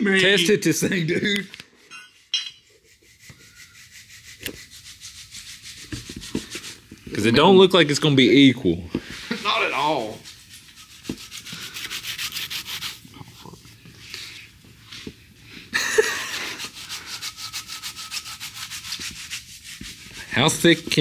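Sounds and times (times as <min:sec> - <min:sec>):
fast rubbing strokes: 0:02.7 - 0:08.0, 0:09.1 - 0:13.1, 0:16.2 - 0:21.0.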